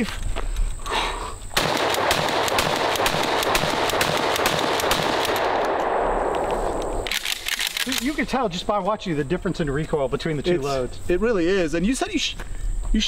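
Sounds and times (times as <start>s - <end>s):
shotgun firing: 1.6s - 8.1s
shotgun pump action: 6.8s - 8.2s.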